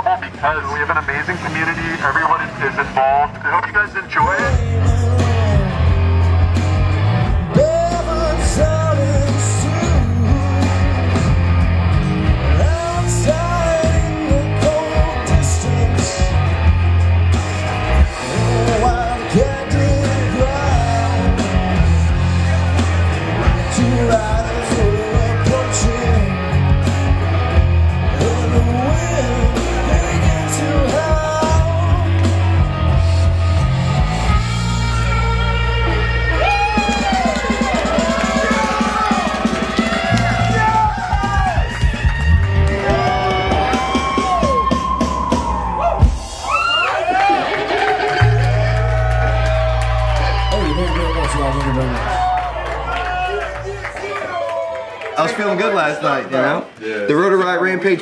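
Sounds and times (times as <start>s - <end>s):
live rock band playing: 0.0s - 54.0s
person singing: 7.5s - 11.2s, 23.4s - 26.7s, 28.0s - 32.5s.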